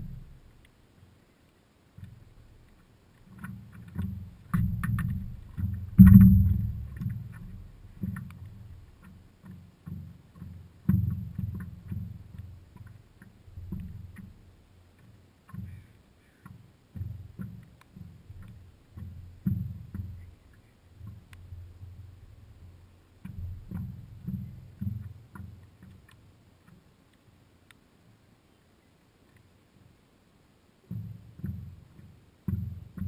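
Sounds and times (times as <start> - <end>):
water slapping against board hull: 2.0 - 15.8.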